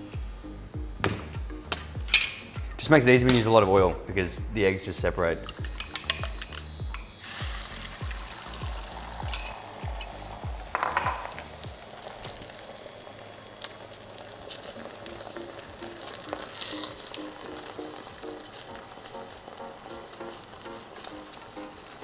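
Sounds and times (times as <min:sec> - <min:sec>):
background music: 0:00.0 - 0:22.0
eggs sizzling in a frying pan: 0:07.2 - 0:22.0.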